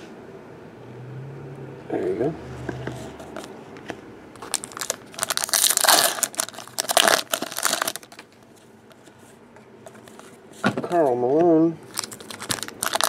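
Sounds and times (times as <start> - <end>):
card wrappers crinkling and tearing: 4.4 - 8.3, 11.8 - 13.0.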